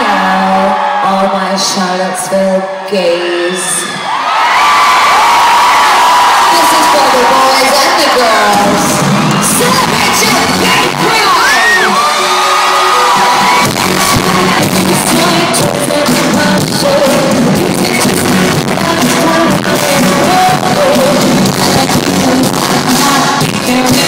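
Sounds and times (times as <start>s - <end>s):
loud live pop music: 0.0s - 24.0s
person singing: 11.6s - 24.0s.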